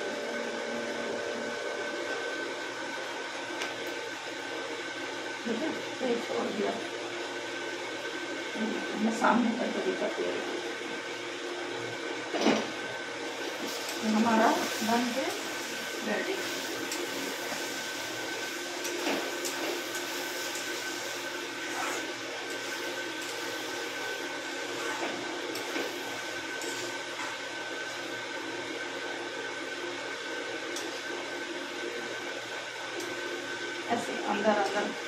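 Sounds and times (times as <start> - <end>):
food frying in a pan: 12.7 - 29.1.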